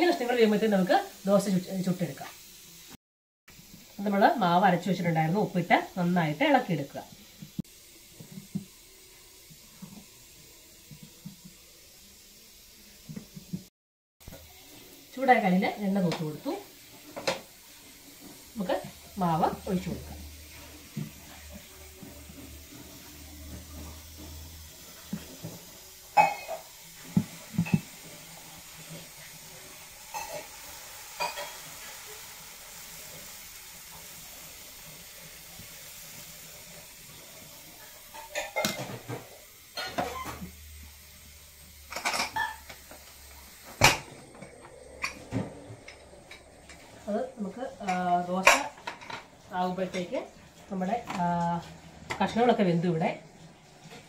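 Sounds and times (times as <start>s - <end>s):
batter sizzling on a pan: 0.0s - 54.0s
metal pots and utensils clanking: 19.5s - 28.1s, 30.0s - 31.8s, 37.8s - 40.6s, 41.8s - 47.1s, 47.8s - 52.5s.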